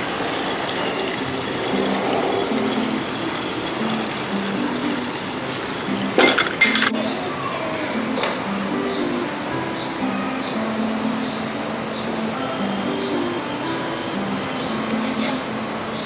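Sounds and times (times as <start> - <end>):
steady rushing noise: 0.0 - 6.1
light background music: 1.0 - 16.0
toy engine clattering on concrete: 6.2 - 6.9.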